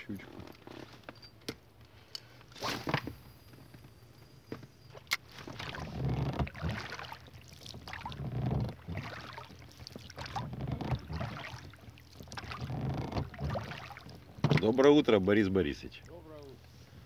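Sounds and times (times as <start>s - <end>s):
water swishing from oars: 4.8s - 17.0s
oars knocking: 5.3s - 15.1s.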